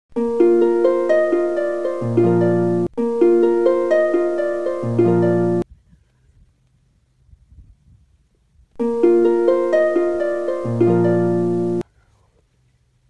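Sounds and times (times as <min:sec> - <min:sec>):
plucked harp-like notes: 0:00.2 - 0:05.6, 0:08.8 - 0:11.8.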